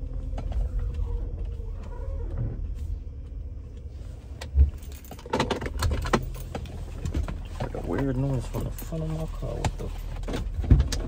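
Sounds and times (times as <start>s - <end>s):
road and engine rumble: 0.0s - 11.0s
clicking and rattling: 3.7s - 11.0s.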